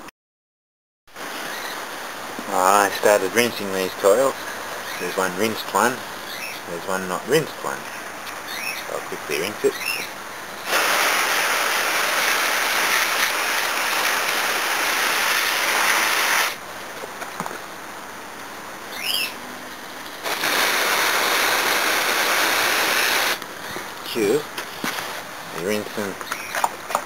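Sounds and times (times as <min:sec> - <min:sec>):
hose nozzle spraying water: 0:10.6 - 0:16.6, 0:20.2 - 0:23.4.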